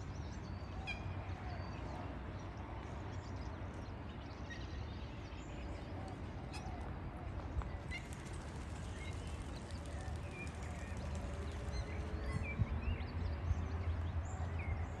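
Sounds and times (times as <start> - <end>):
small birds chirping: 7.8 - 13.2.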